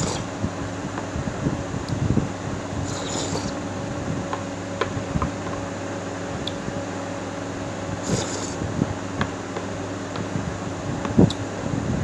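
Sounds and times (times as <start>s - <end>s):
person slurping: 0.0s - 0.3s, 2.8s - 3.6s, 8.0s - 8.7s
background hum: 0.0s - 12.0s.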